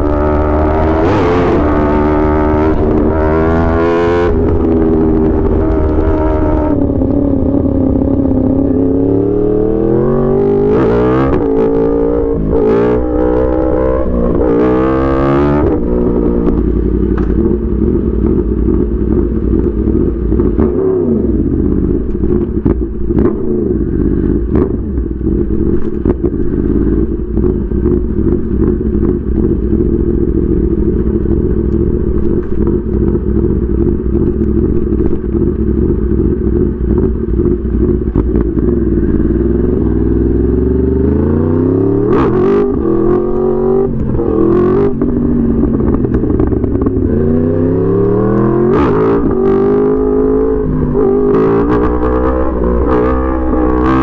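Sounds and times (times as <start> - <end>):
motorcycle engine revving: 0.0 - 54.0
sharp clicks and pops: 31.2 - 33.2, 33.8 - 35.4.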